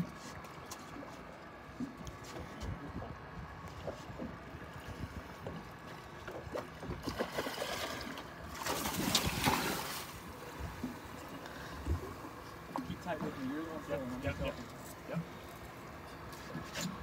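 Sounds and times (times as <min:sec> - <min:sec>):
water knocking against hull: 0:02.9 - 0:09.6
fish thrashing and splashing: 0:06.6 - 0:10.2.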